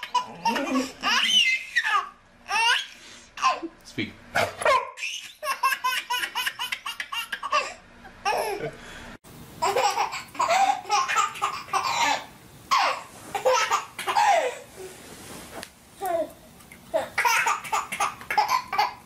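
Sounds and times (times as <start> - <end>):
baby laughing hysterically: 0.0 - 3.6, 4.7 - 8.6, 9.6 - 14.6.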